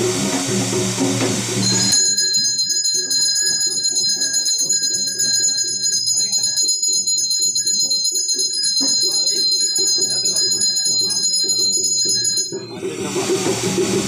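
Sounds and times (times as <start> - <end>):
bell ringing: 1.6 - 13.3
voices: 8.7 - 14.0.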